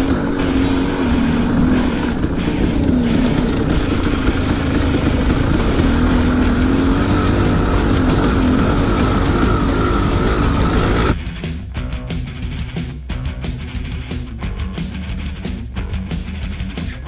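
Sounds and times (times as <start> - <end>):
wind rush and trail noise: 0.0 - 11.2
dirt bike engine: 0.0 - 17.0.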